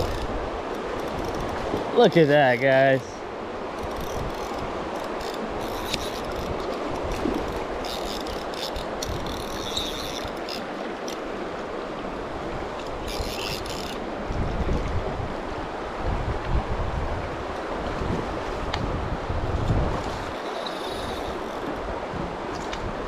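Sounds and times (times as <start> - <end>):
fly reel ratcheting: 0.0 - 1.6, 3.8 - 11.2, 12.8 - 14.0, 20.3 - 21.7
creek water rushing: 0.0 - 23.0.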